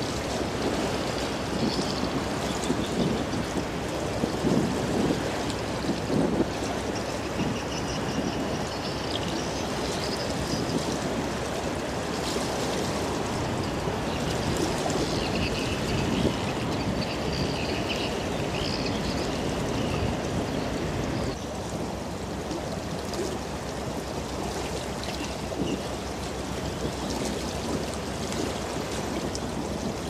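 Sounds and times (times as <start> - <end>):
water rushing along ship hull: 0.0 - 30.0.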